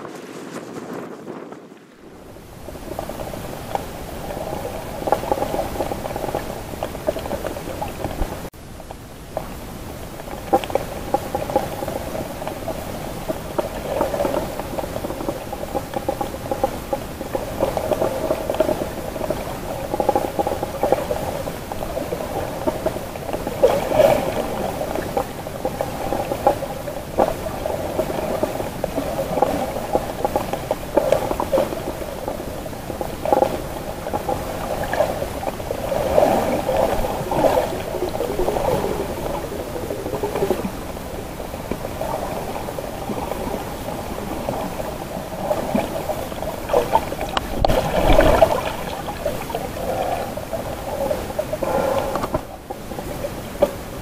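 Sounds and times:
muffled underwater water movement: 0.0 - 54.0
deep water surge: 10.3 - 54.0.

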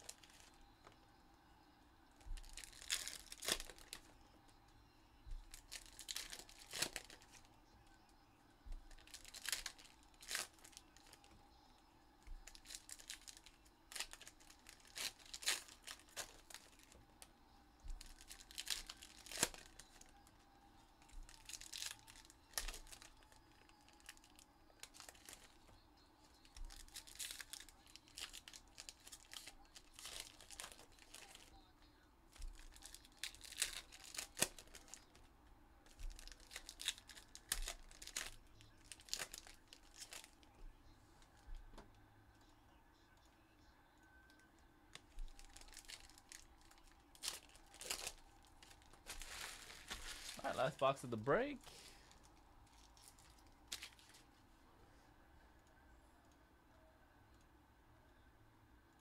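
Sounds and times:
foil wrappers torn and crinkled: 0.0 - 0.6, 2.3 - 4.1, 5.4 - 7.4, 8.8 - 11.4, 12.3 - 17.0, 17.9 - 20.3, 21.0 - 25.6, 26.4 - 31.6, 32.4 - 35.2, 35.9 - 40.5, 44.9 - 51.0, 51.8 - 54.2.

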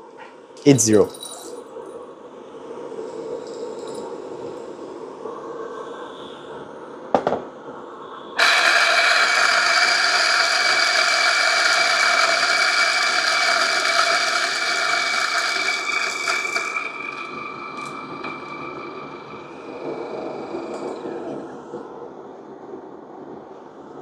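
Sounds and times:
coffee grinder whirring: 8.4 - 21.1.

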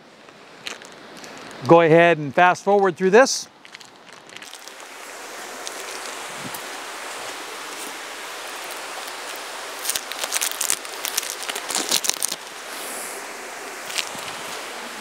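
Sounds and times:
plastic wrappers crinkling: 0.6 - 1.6, 3.6 - 4.9, 5.5 - 12.5, 13.8 - 14.6.

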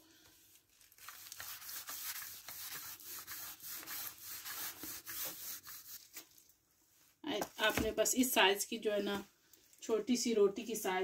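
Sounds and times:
rolling pin rubbing on dough: 1.6 - 6.1.

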